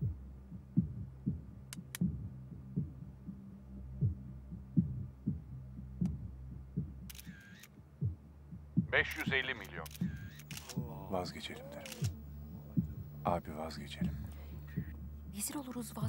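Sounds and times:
heartbeat-like thumps: 0.0s - 16.0s
low drone: 10.2s - 16.0s.

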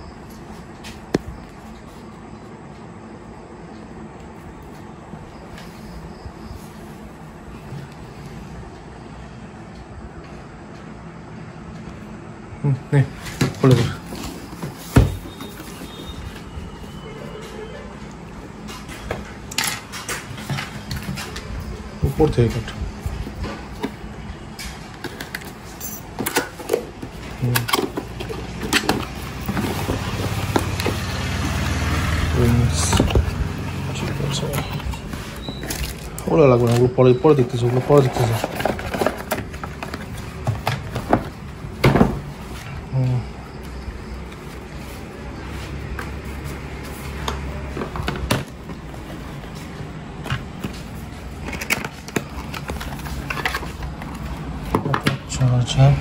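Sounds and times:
laptop scraping and rustling: 13.3s - 17.7s, 27.1s - 41.5s, 50.4s - 54.7s
cardboard box scraping and crinkling: 28.0s - 36.1s, 37.6s - 40.4s.

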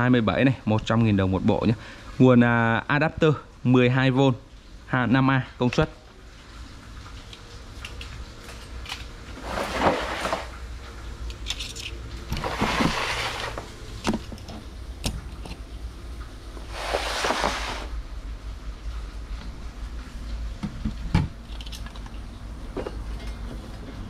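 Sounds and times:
items rustling and clattering: 7.3s - 18.0s.

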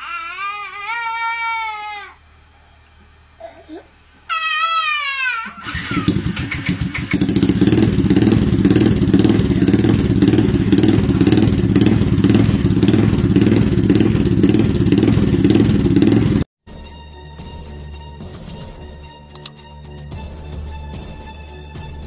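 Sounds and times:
motorcycle engine running: 5.6s - 16.5s.

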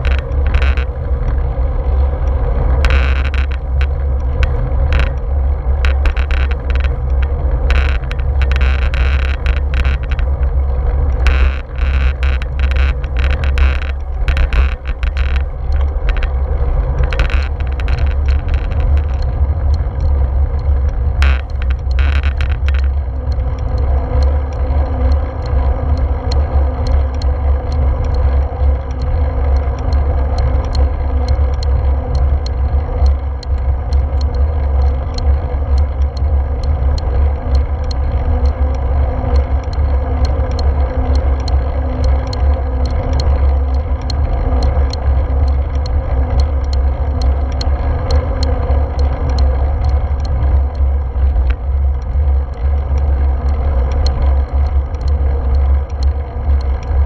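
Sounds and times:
wind and road vibration rumble: 0.0s - 57.0s
faint quick ticks: 2.8s - 5.2s.

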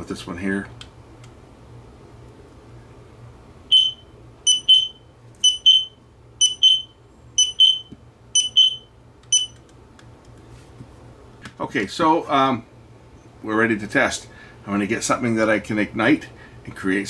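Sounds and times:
smoke alarms beeping: 3.7s - 9.6s.

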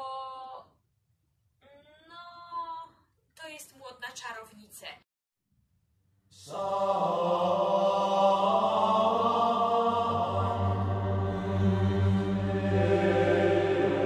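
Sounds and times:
male voices chanting: 6.4s - 14.0s.

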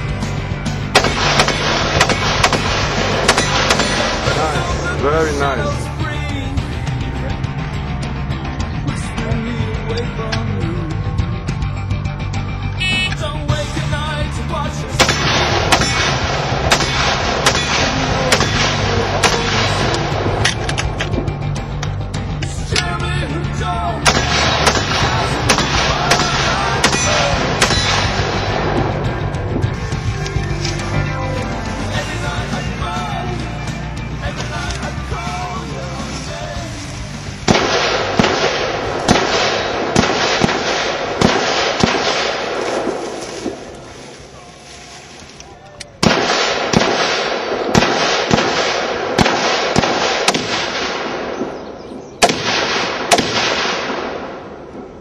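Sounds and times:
rifle single shots: 0.9s - 4.5s, 15.0s - 21.1s, 24.0s - 29.0s, 37.4s - 43.8s, 46.0s - 55.0s.

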